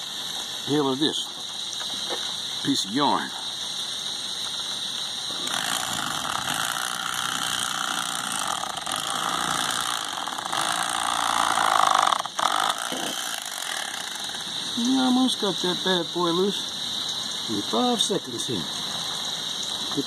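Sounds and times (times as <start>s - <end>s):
electric knife sawing: 5.3s - 14.9s.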